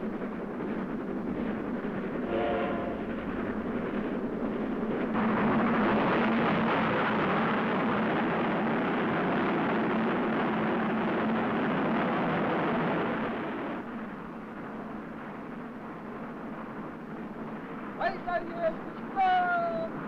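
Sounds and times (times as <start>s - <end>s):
steam train running in tunnel: 0.0s - 20.0s.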